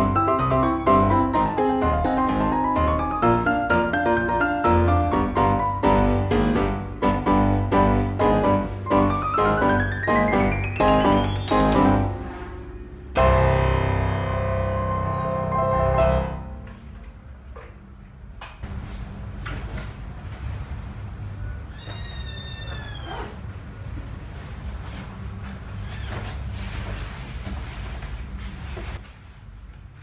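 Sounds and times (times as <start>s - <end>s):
piano music: 0.0s - 17.5s
kitten meowing: 21.7s - 23.2s.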